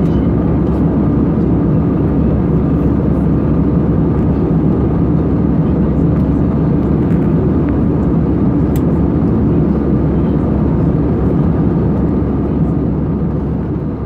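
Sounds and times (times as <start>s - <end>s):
jet engine cabin rush: 0.0s - 14.0s.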